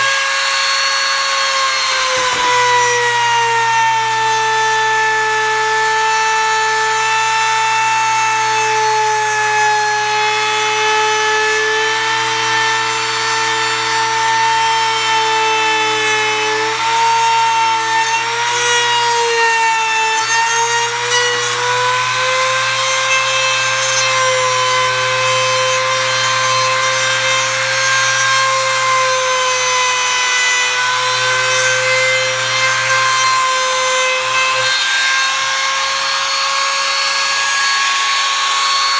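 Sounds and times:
router whining carving wood: 0.0s - 38.9s.

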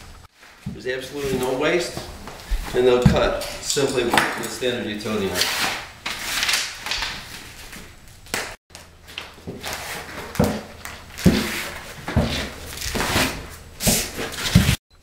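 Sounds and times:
foam strip handling knocks and rustles: 9.1s - 14.8s.

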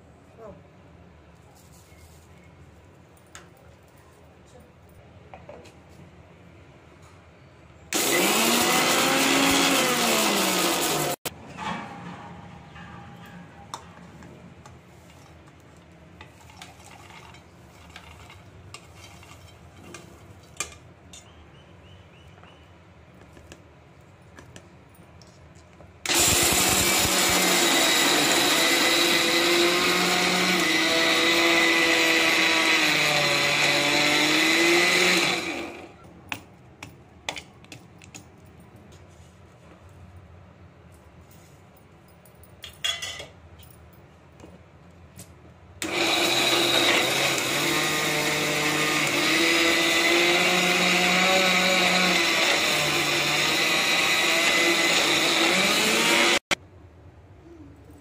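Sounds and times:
mixer grinder grinding: 8.0s - 11.3s, 16.3s - 20.1s, 26.0s - 36.0s, 45.8s - 56.5s.

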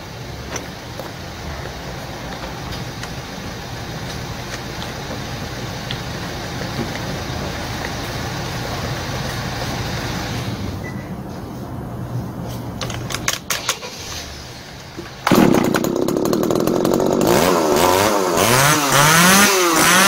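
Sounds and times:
chainsaw engine idling: 15.3s - 20.0s.

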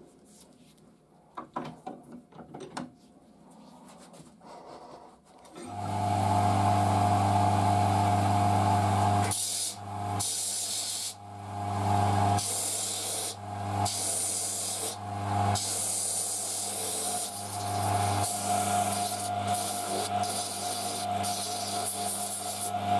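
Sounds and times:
wood sanding hiss: 9.3s - 11.2s, 12.4s - 15.0s, 15.6s - 22.8s
disc sander humming: 11.6s - 22.9s.

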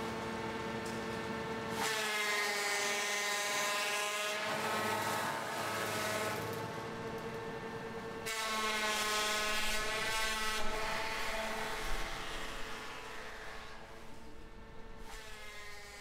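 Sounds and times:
mechanical hum with whine: 0.0s - 16.0s.

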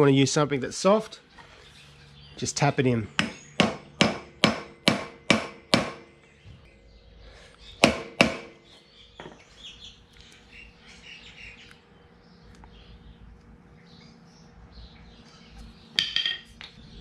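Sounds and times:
hammer tapping: 3.2s - 6.1s, 7.8s - 8.5s.

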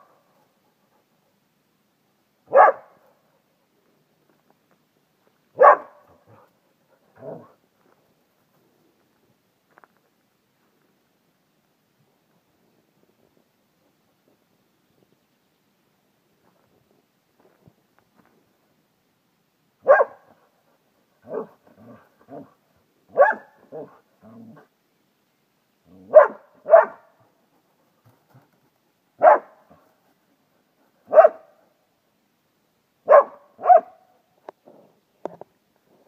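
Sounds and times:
dog barking: 2.5s - 3.1s, 5.6s - 6.4s, 19.8s - 20.4s, 21.2s - 22.5s, 23.1s - 24.0s, 26.1s - 27.2s, 29.2s - 29.6s, 31.1s - 31.6s, 33.1s - 34.1s
quiet low dog woofs: 5.6s - 7.6s.

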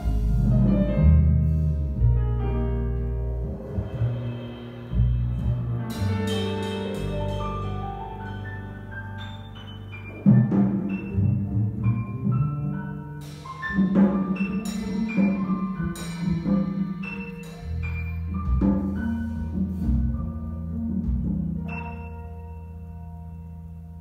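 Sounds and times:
drum kit: 0.0s - 21.9s
grand piano: 0.0s - 24.0s
plucked double bass: 0.0s - 24.0s
cymbal strikes: 3.8s - 8.2s.

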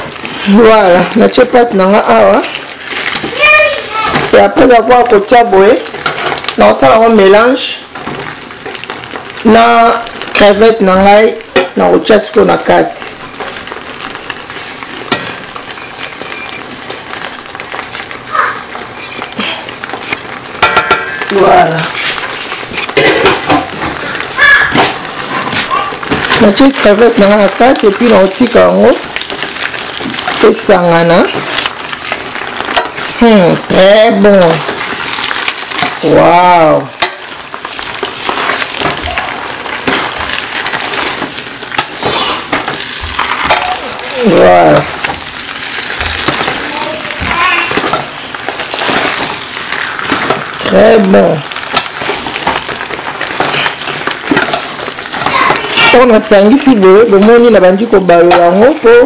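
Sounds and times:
steady sizzle: 0.0s - 59.0s
wet pasta being turned: 0.0s - 59.0s
sauce pouring: 29.0s - 30.4s, 36.9s - 56.0s.

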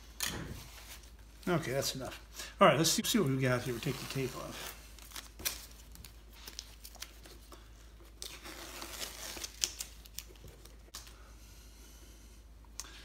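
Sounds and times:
masking tape peeling: 8.1s - 11.0s.

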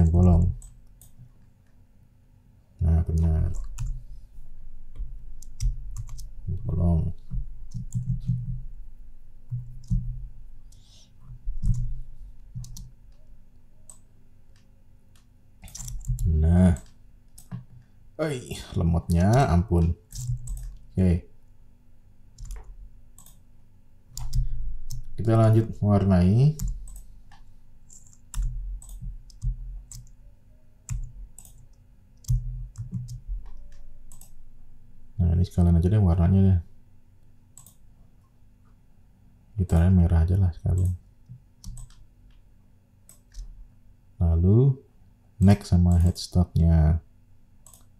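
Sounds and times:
mouse and keyboard clicking: 13.9s - 17.7s, 22.4s - 23.4s, 26.6s - 30.2s, 30.9s - 34.4s, 37.6s - 37.8s, 41.6s - 42.0s, 47.6s - 47.9s
mouse and keyboard clicks: 13.9s - 17.7s, 22.4s - 23.4s.

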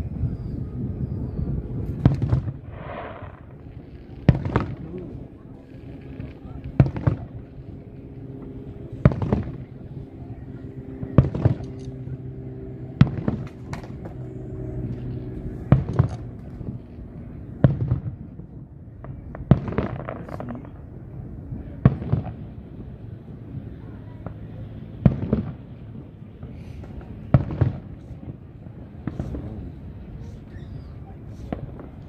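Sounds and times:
steady low hum: 0.0s - 32.0s
fireworks bursting: 1.8s - 9.9s, 15.7s - 16.7s, 24.2s - 32.0s.

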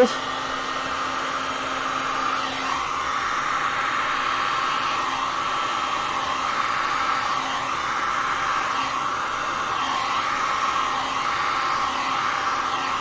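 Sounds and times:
heat gun blowing: 0.0s - 13.0s.

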